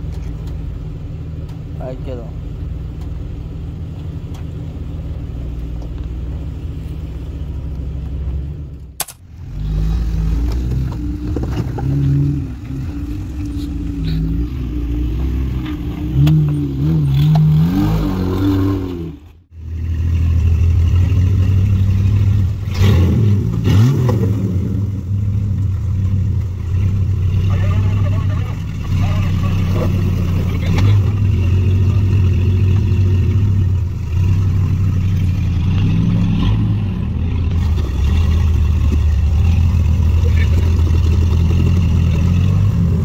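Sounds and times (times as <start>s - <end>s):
off-road engines revving: 0.0s - 43.0s.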